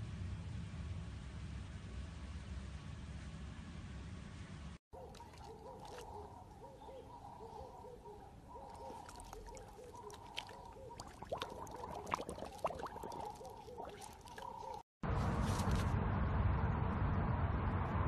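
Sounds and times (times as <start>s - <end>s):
water splashing: 5.0s - 6.4s, 8.6s - 14.9s.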